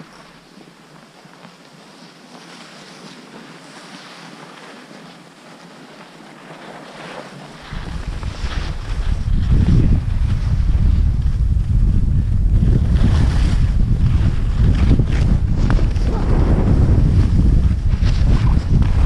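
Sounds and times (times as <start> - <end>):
skis scraping on packed snow: 0.0 - 19.0
wind buffeting microphone: 7.5 - 19.0.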